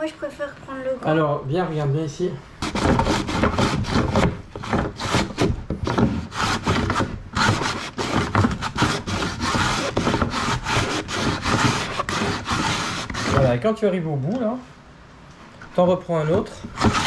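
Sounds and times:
cabbage shredder strokes: 0:02.6 - 0:13.6.

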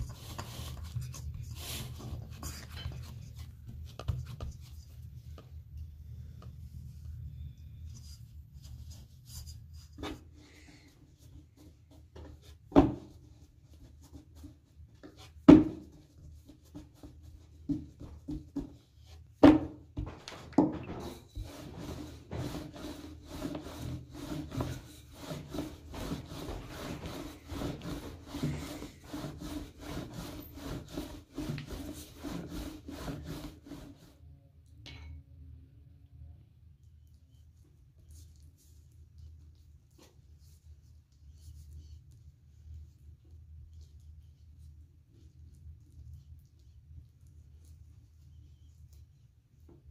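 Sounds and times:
rolling pin rubbing on dough: 0:00.0 - 0:05.4, 0:07.8 - 0:34.2.

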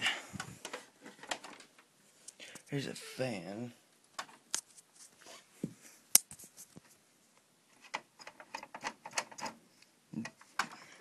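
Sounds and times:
computer parts clicking and knocking: 0:00.6 - 0:01.8, 0:07.7 - 0:09.6, 0:10.2 - 0:10.9.

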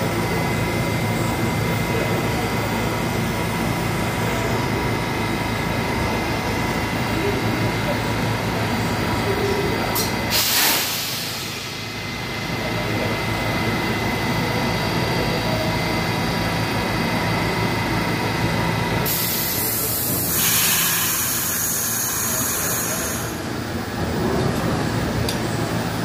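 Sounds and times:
train equipment hum and whine: 0:00.0 - 0:26.0
air hiss: 0:10.0 - 0:11.7, 0:19.1 - 0:23.2.

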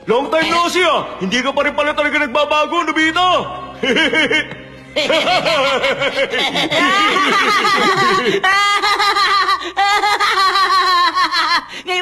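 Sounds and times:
man laughing cartoon voice: 0:03.8 - 0:11.6.

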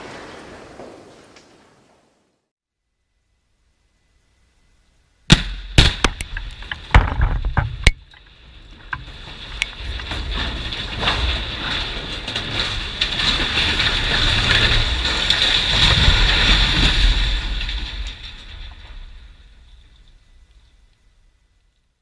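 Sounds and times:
steel structure crashing to ground: 0:05.3 - 0:21.2.

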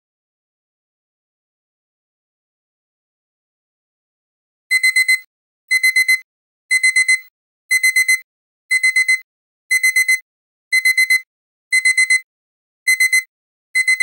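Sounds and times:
digital alarm clock beeping: 0:04.7 - 0:12.3, 0:12.9 - 0:14.0.

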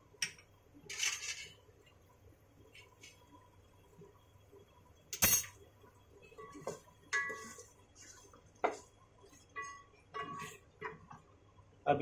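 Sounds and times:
ladle clinking on metal pot: 0:06.4 - 0:07.6, 0:09.5 - 0:11.0.

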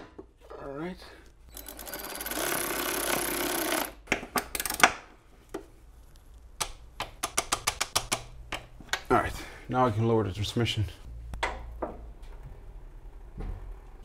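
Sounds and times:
electric ratchet buzzing rattle: 0:01.5 - 0:04.0.

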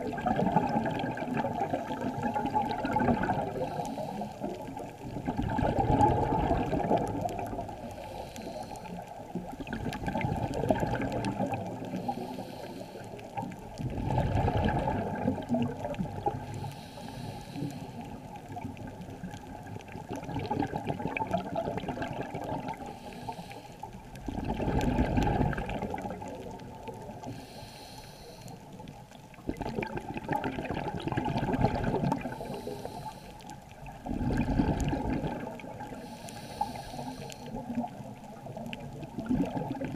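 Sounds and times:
muffled regulator bubbling: 0:00.0 - 0:12.6, 0:13.2 - 0:27.3, 0:29.3 - 0:39.9
faint hiss of inhalation: 0:03.5 - 0:04.6, 0:07.8 - 0:09.2, 0:11.9 - 0:13.4, 0:16.4 - 0:18.3, 0:22.9 - 0:24.0, 0:27.2 - 0:28.8, 0:32.2 - 0:33.6, 0:35.9 - 0:37.7.

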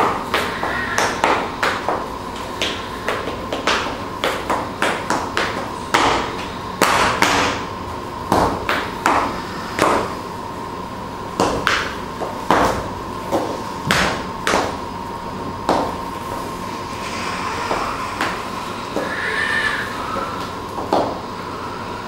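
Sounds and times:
steady high hum: 0:00.0 - 0:22.0.

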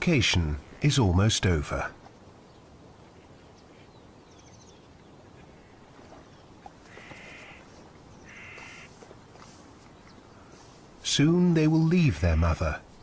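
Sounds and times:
buzzy animal calls: 0:06.8 - 0:09.0.

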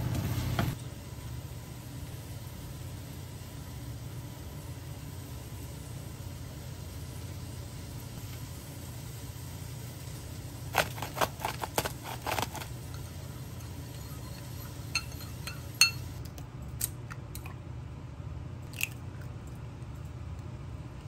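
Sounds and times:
steady low hum: 0:00.0 - 0:21.0
spoon clinking against bowl: 0:13.6 - 0:16.2.

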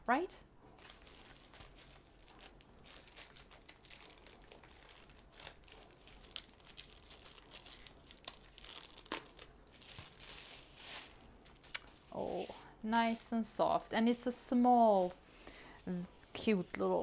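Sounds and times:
plastic wrapper crinkling: 0:00.8 - 0:12.1.

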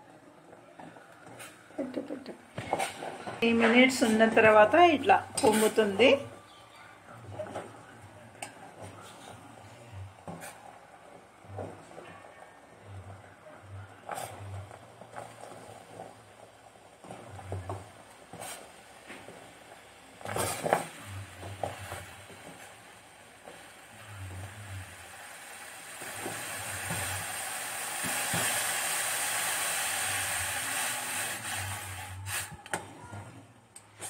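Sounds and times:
milk hissing and sizzling in pot: 0:00.0 - 0:34.0.

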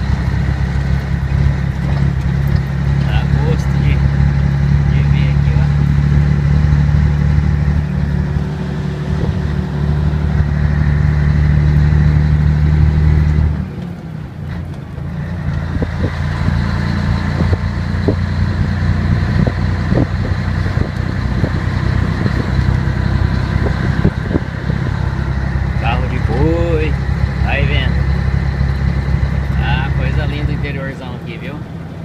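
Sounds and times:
light ticks and rattles: 0:00.0 - 0:04.3
diesel truck engine from cab: 0:00.0 - 0:32.0.

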